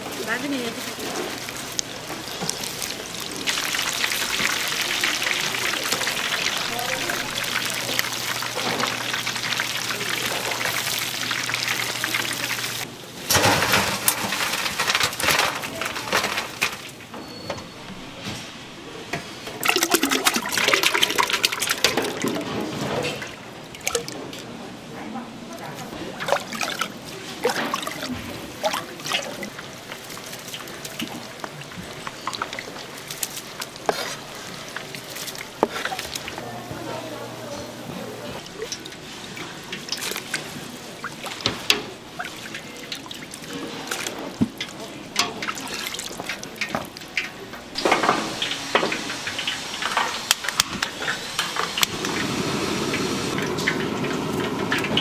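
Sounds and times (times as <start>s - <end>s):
food sizzling in oil: 0.1s - 12.9s, 47.8s - 55.0s
liquid pouring and trickling: 0.3s - 12.9s, 19.6s - 24.5s, 25.9s - 36.8s, 38.4s - 55.0s.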